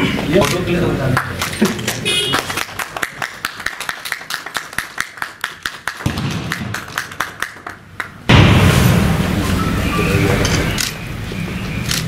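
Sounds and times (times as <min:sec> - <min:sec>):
small group applauding: 0:01.1 - 0:08.2.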